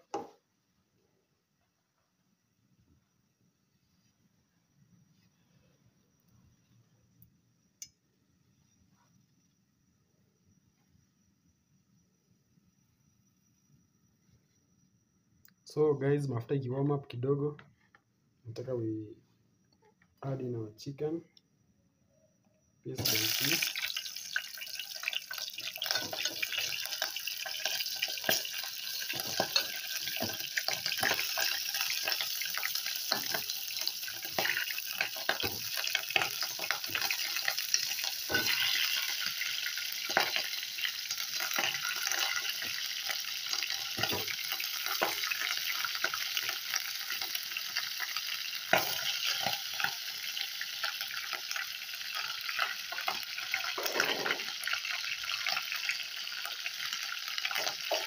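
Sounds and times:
chicken sizzling in hot oil: 0:22.9 - 0:58.0.

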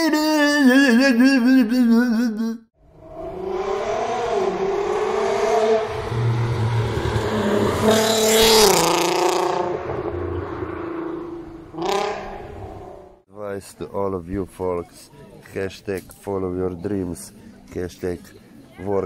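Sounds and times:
car driving past: 0:02.8 - 0:13.2.

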